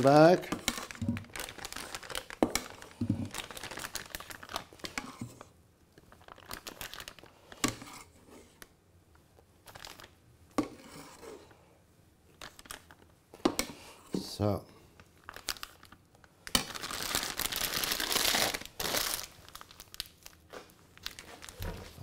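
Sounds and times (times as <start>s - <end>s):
plastic bag crinkling: 0.7s - 4.9s, 6.1s - 7.4s, 9.6s - 10.2s, 12.4s - 13.1s, 15.2s - 22.0s.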